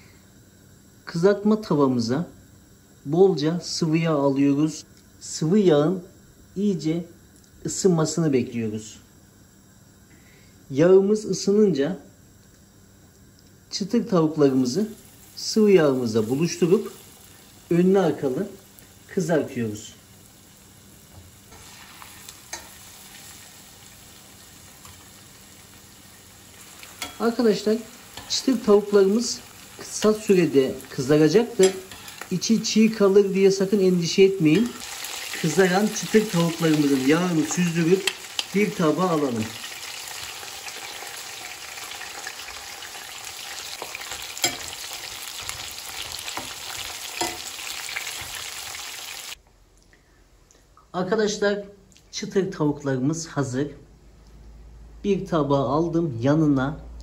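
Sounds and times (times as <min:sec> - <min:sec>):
chicken deep-frying in oil: 0:14.1 - 0:49.4.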